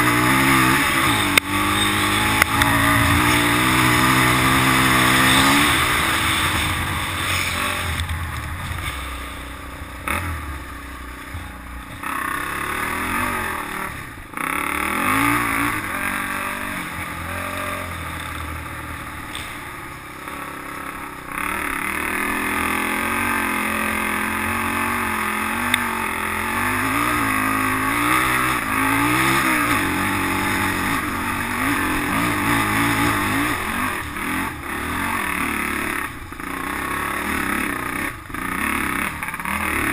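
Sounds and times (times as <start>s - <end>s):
steady rushing noise: 0.0s - 19.8s
quad engine revving: 0.0s - 39.9s.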